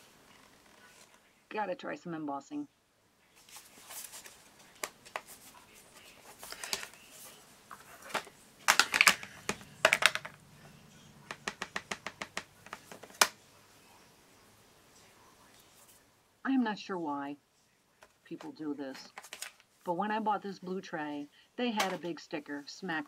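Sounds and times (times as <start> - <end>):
plastic case clicks and knocks: 8.1 - 10.4, 11.3 - 13.4.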